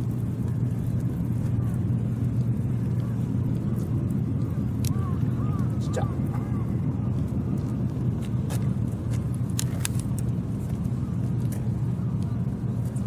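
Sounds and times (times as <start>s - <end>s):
low outdoor rumble: 0.0s - 13.0s.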